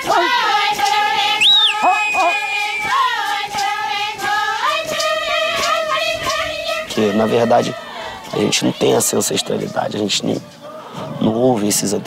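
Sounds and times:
women singing a chant together: 0:00.0 - 0:09.2.

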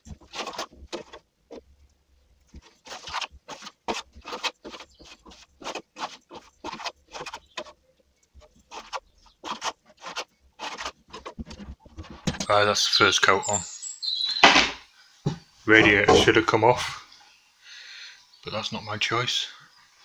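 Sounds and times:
trowel scraping plaster on wall: 0:00.0 - 0:01.6, 0:02.5 - 0:07.8, 0:08.4 - 0:12.3.

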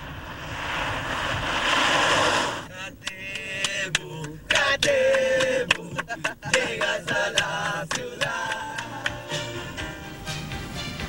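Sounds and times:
men singing in chorus: 0:02.7 - 0:09.7.

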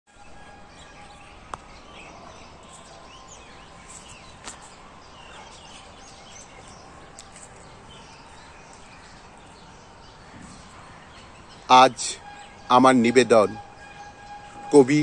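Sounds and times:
birds chirping: 0:00.1 - 0:15.0.

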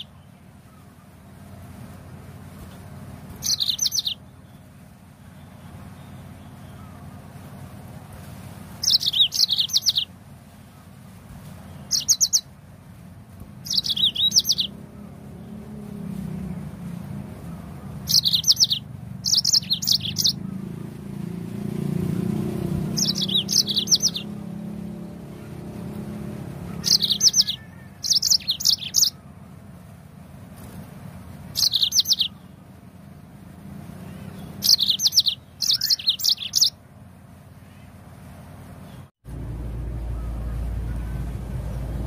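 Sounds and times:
canary singing: 0:00.0 - 0:01.0, 0:03.2 - 0:07.2, 0:08.8 - 0:10.2, 0:11.6 - 0:12.6, 0:13.4 - 0:29.7, 0:31.5 - 0:32.8, 0:33.9 - 0:36.9.

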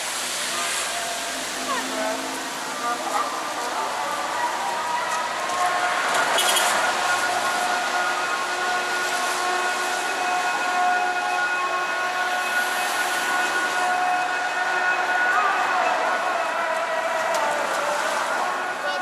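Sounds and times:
rain hissing: 0:00.0 - 0:10.2
wet traffic: 0:00.0 - 0:19.0.

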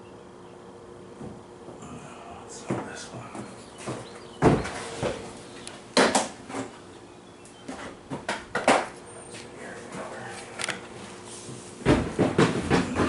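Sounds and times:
knocks of hard objects being handled: 0:02.6 - 0:05.2, 0:07.7 - 0:09.0, 0:11.8 - 0:13.0.

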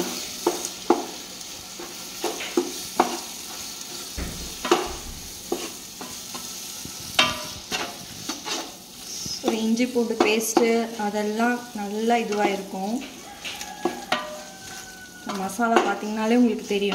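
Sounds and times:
masala sizzling: 0:00.0 - 0:16.9
spoon scraping a pot: 0:12.3 - 0:16.1.

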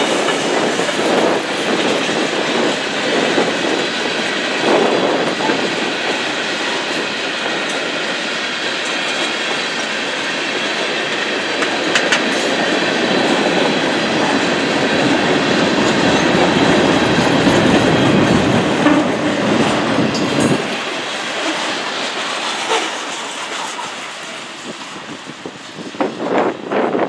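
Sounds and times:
freight train rolling past: 0:00.0 - 0:27.0
steel wheels clacking over rail joints: 0:00.0 - 0:27.0.

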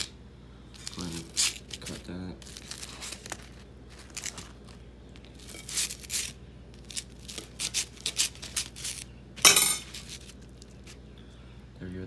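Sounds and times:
fork scraping fried fish: 0:05.4 - 0:09.0.

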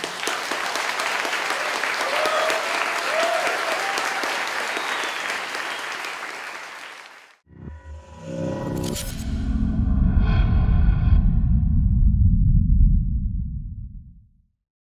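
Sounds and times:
audience applauding: 0:00.0 - 0:07.4
whoops: 0:01.5 - 0:05.9.

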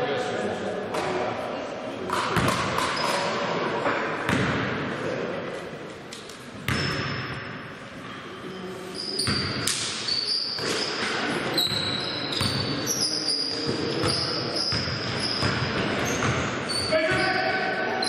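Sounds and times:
basketball bouncing on court: 0:02.1 - 0:03.0, 0:04.3 - 0:04.8, 0:06.6 - 0:07.4, 0:09.2 - 0:09.8, 0:11.6 - 0:12.7, 0:13.6 - 0:17.2
shoes squeaking on floor: 0:08.1 - 0:17.4.

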